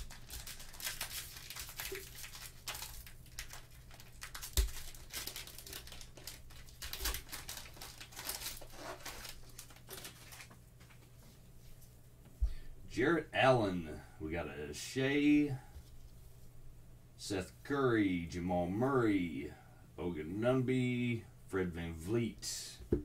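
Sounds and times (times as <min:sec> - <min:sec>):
wrapper tearing and crinkling: 0:00.0 - 0:10.6.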